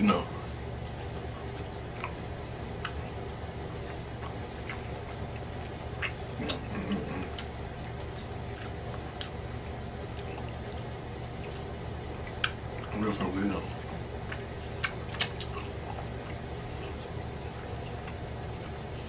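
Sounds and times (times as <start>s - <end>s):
steady low hum: 0.0s - 19.0s
chewing smacks: 0.4s - 19.0s
fingers pulling apart meat: 13.8s - 19.0s.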